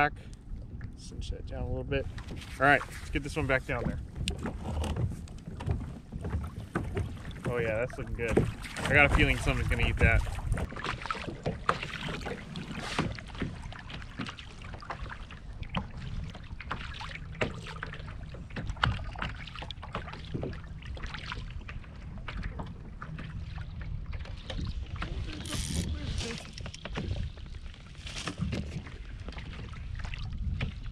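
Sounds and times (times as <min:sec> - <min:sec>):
wind buffeting microphone: 0:00.0 - 0:11.4
waves slapping kayak hull: 0:01.6 - 0:30.9.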